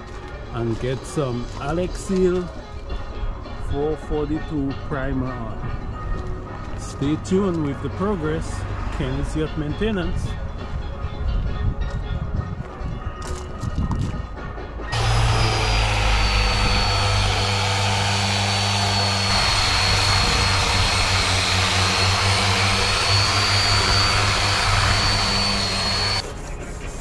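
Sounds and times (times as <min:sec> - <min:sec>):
motor running with high whine: 0:14.9 - 0:26.2.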